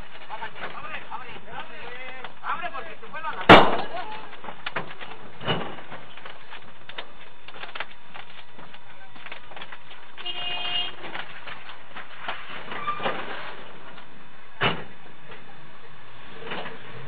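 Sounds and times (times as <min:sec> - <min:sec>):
knocks and clatter: 0:00.0 - 0:15.5
van interior noise: 0:00.0 - 0:17.0
sharp bang: 0:03.5 - 0:04.0.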